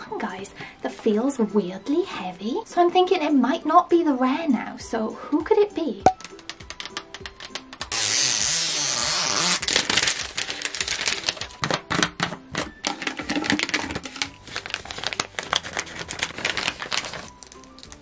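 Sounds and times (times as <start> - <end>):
plastic packaging crinkling: 9.2 - 12.1, 12.8 - 18.0.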